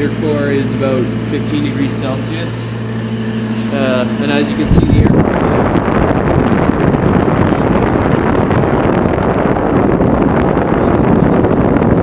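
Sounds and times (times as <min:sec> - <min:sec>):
fan air rushing: 0:00.0 - 0:12.0
wind buffeting microphone: 0:02.8 - 0:12.0.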